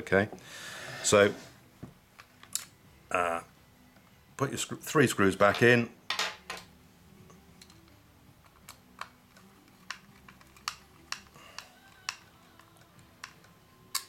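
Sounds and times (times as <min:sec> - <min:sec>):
screwdriver and screws clicking on plastic: 0:07.6 - 0:14.0.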